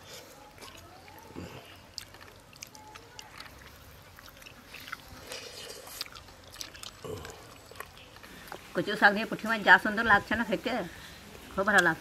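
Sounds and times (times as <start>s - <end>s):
person chewing food: 0.0s - 8.7s
wet mouth clicks and smacks: 5.7s - 8.6s.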